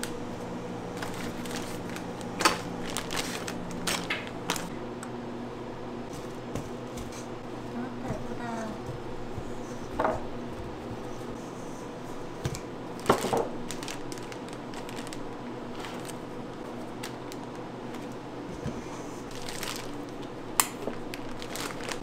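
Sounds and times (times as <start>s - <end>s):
steady low hum: 0.0s - 22.0s
food squishing: 19.2s - 22.0s.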